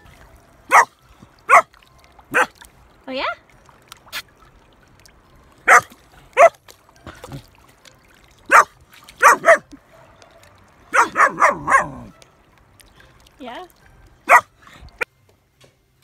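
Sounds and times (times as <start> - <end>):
puppy barking in sharp yaps: 0.7 - 0.9, 5.7 - 6.6, 8.5 - 9.7, 10.9 - 12.3.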